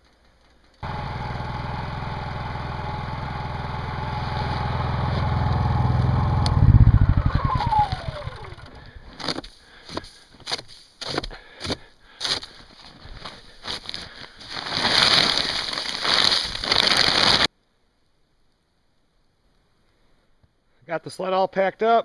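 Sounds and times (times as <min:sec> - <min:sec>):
engine coasting to a stop: 0:00.1 - 0:09.4
portable generator running: 0:00.8 - 0:09.4.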